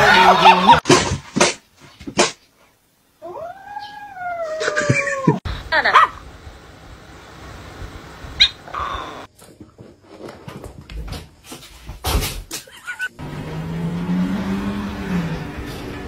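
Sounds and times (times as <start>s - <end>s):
animals scuffling and bumping: 9.3s - 12.7s.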